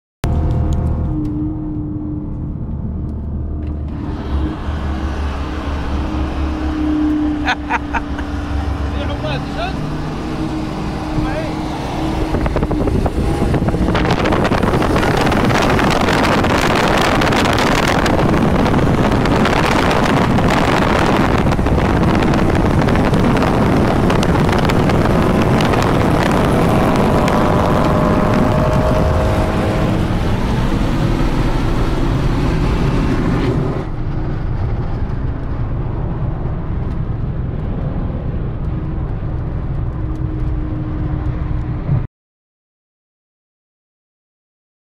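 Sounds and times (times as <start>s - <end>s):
road noise: 0.2s - 42.1s
wind rush at highway speed: 0.2s - 42.1s.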